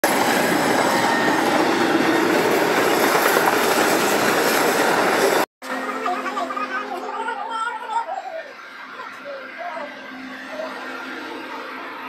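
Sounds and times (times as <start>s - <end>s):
train wheels on rails: 0.0s - 5.5s.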